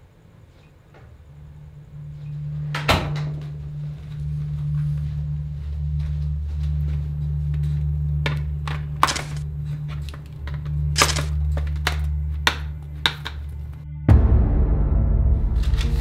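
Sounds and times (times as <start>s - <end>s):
loud low music: 13.9s - 16.0s.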